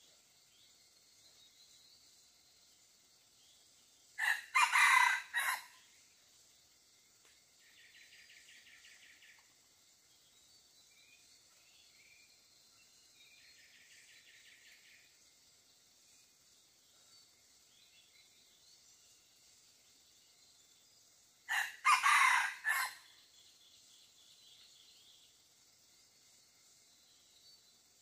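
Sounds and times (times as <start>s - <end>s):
rooster crowing: 4.2s - 5.7s, 21.5s - 23.0s.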